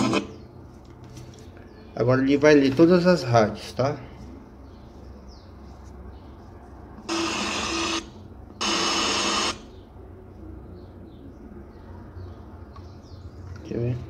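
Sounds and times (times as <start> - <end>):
radio static hiss: 0.0 - 0.3, 7.1 - 9.6.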